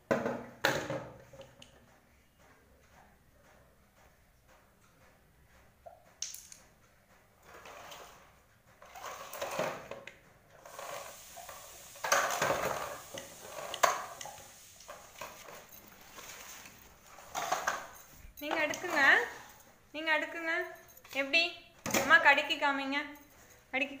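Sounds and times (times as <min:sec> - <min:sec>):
plastic toys clattering on tiled floor: 0:08.8 - 0:19.6.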